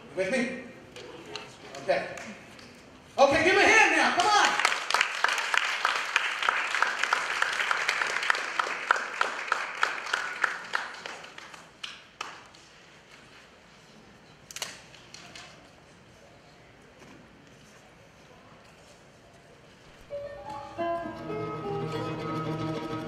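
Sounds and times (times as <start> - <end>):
audience applauding: 4.2 - 12.5.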